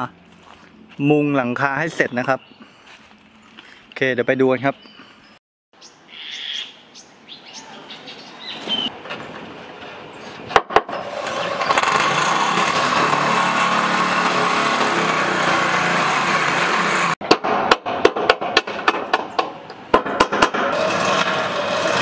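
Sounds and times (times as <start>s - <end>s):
birds chirping: 0.0s - 10.6s
handheld power tool running: 11.0s - 17.2s.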